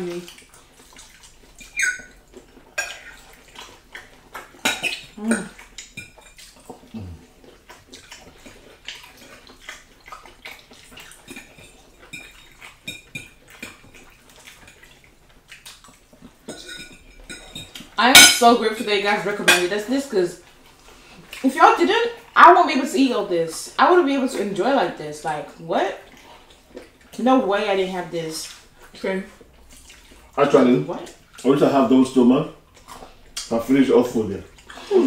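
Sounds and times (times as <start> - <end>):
forks clinking on plates: 16.5 - 18.6, 19.4 - 19.7.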